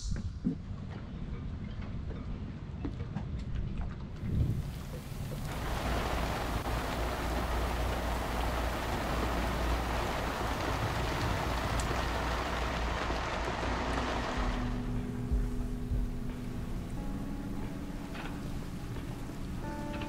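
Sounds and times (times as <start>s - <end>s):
low steady rumble: 4.2s - 20.0s
rain on water and canvas: 4.2s - 20.0s.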